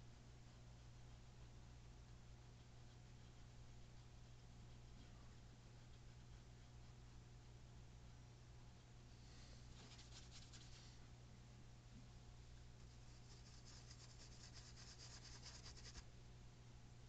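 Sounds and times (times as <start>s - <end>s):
steady low hum: 0.0s - 17.0s
paintbrush scratchy rubbing: 9.7s - 11.0s, 12.8s - 16.0s.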